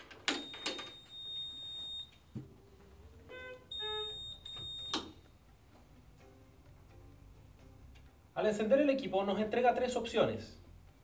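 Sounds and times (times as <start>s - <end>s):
ventilator high beep: 0.3s - 2.2s, 3.3s - 5.2s
electronic chime: 3.4s - 5.0s.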